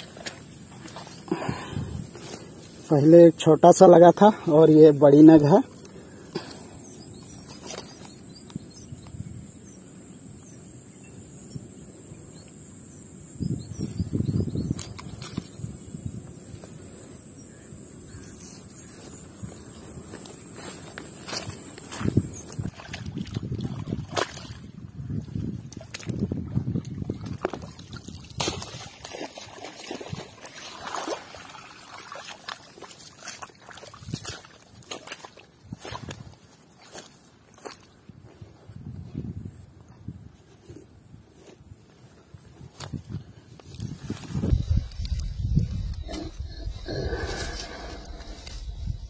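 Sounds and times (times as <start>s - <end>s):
water splashing and trickling: 0.0s - 3.0s, 20.6s - 37.8s
high-pitched insect buzz: 7.0s - 22.6s, 43.0s - 49.0s
faint bird chirps: 17.0s - 20.0s
sharp water splash: 27.2s - 35.4s.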